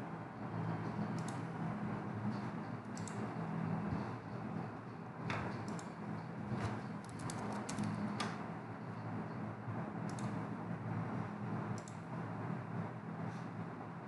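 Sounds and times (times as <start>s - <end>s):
keyboard typing: 3.0s - 3.2s, 7.0s - 8.3s.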